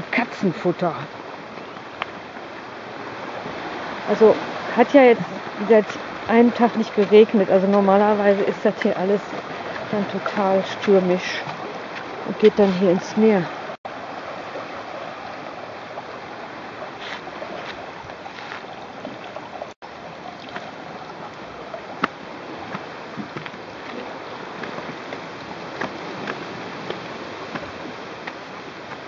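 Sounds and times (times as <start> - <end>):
rocky stream flowing: 0.0 - 29.0
sea waves on rocks: 0.0 - 29.0
footsteps on a stony path: 10.8 - 13.0, 17.0 - 18.8.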